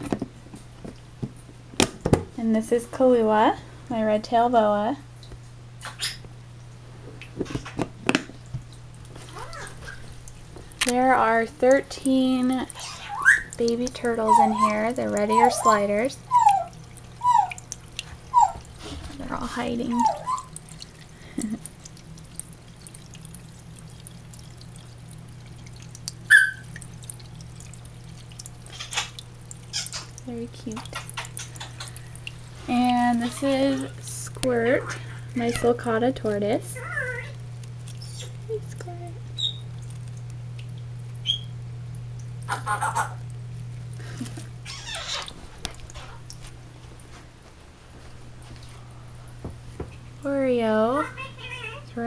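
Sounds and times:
steady low hum: 0.0 - 52.0
water trickling and dripping: 2.4 - 52.0
animal call: 14.2 - 17.6, 18.3 - 18.7, 19.9 - 20.6.

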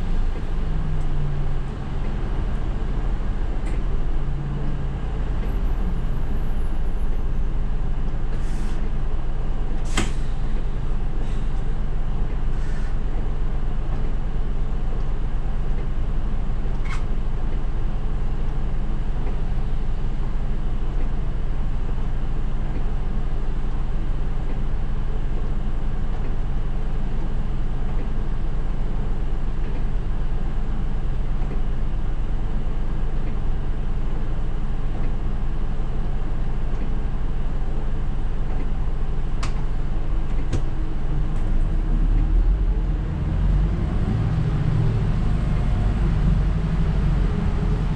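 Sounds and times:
bus diesel engine idling: 0.0 - 16.6.

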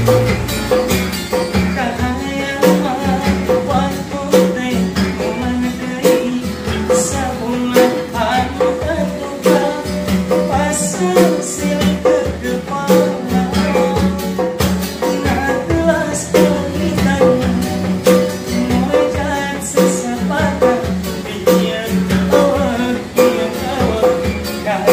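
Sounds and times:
acoustic guitar strumming: 0.0 - 24.9
hand drumming on djembe: 0.0 - 24.9
man singing: 1.4 - 24.9.

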